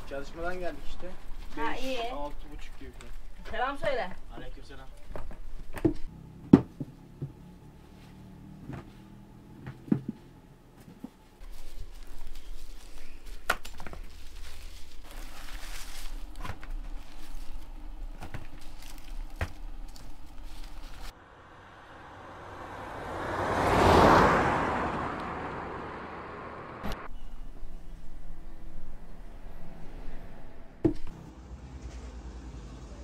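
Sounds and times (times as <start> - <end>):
knocks and thumps: 5.2 - 7.4, 9.6 - 10.2, 30.8 - 31.2.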